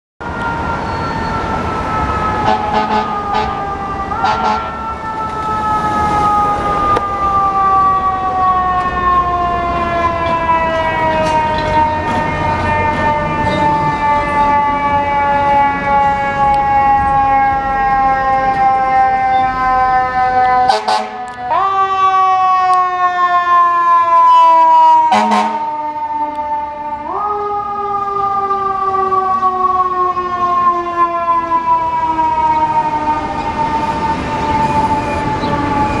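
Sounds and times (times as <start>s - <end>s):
fire engine siren: 0.2s - 36.0s.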